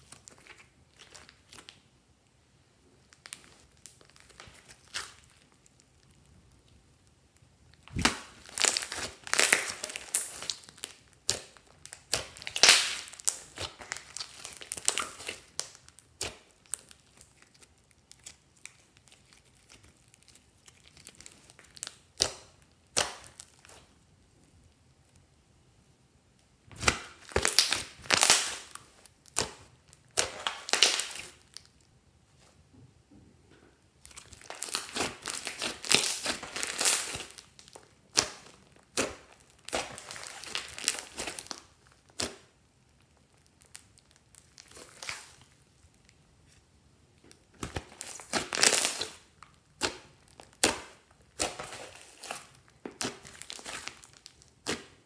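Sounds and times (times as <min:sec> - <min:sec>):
slime crackling and popping: 0:00.0 - 0:01.9, 0:03.0 - 0:24.0, 0:26.7 - 0:31.9, 0:33.9 - 0:46.6, 0:47.2 - 0:55.0.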